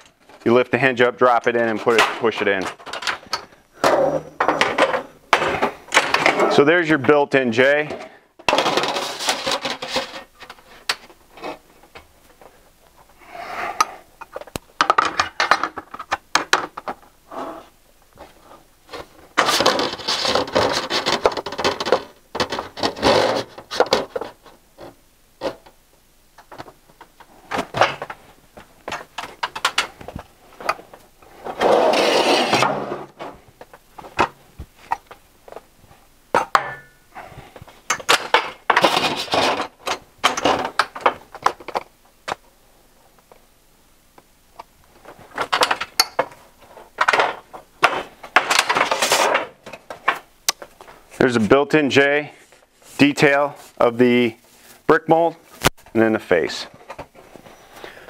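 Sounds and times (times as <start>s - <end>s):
thin metal sheet rattling and scraping: 7.6s - 11.6s, 18.9s - 25.7s, 30.6s - 33.4s, 37.9s - 41.2s, 46.6s - 50.2s.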